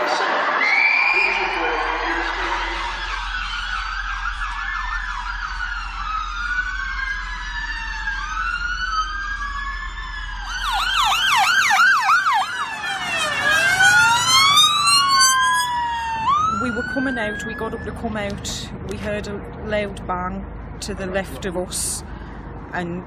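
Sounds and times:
ambulance sirens wailing: 0.0 - 19.2
siren fast yelp: 0.5 - 18.0.

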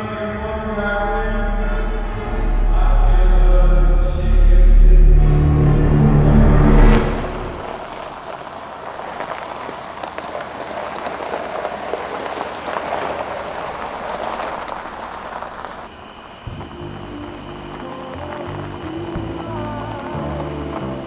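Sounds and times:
low music note: 0.7 - 7.8
steady rain falling: 6.9 - 21.0.

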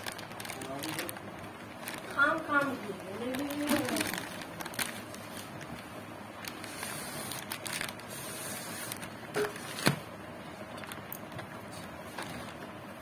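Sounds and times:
plastic packet crinkling: 0.0 - 8.1, 10.7 - 11.4.

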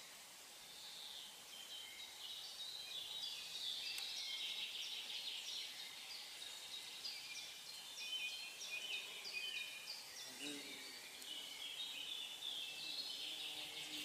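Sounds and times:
faint outdoor hiss: 0.0 - 14.0
songbirds chirping and trilling: 0.0 - 14.0.

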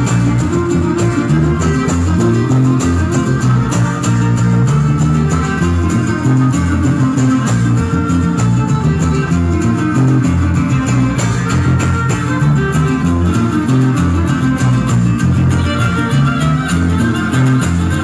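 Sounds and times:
fiddle melody: 0.0 - 18.0
strummed guitars: 0.0 - 18.0.

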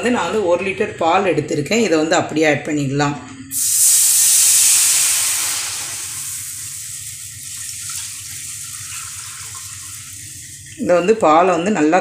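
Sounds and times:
milk pouring: 3.5 - 10.8
milk sizzling in hot pan: 3.5 - 10.9.

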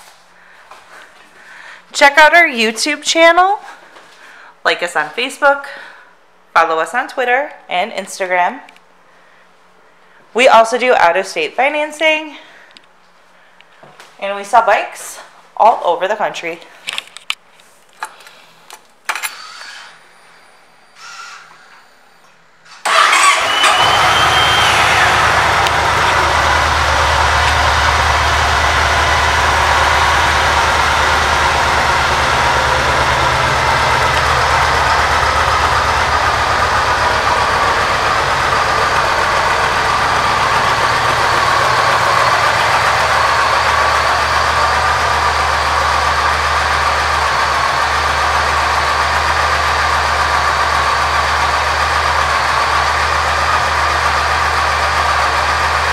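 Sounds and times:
motorcycle engine idling: 22.9 - 55.9.

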